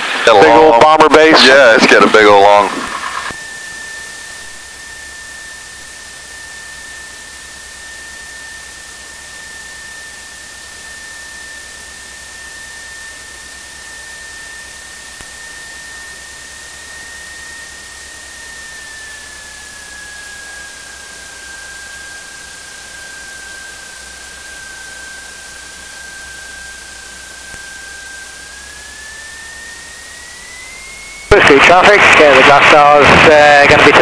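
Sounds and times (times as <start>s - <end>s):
intercom hiss: 0.0s - 3.4s, 31.3s - 34.0s
high engine whine: 0.0s - 34.0s.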